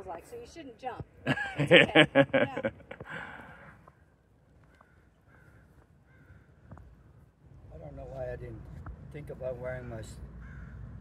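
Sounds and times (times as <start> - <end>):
person laughing: 1.3 - 3.1
breathy exhale: 3.0 - 3.8.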